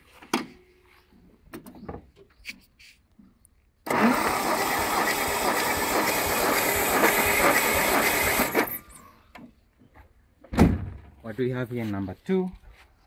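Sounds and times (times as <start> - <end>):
starter motor cranking engine: 3.8 - 9.0.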